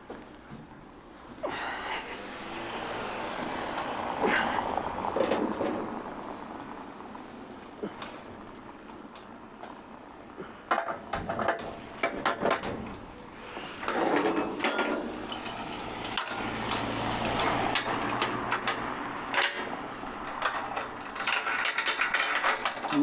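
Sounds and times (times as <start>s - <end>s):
objects knocking and clattering: 3.5s - 6.6s, 10.4s - 13.2s, 13.8s - 23.0s.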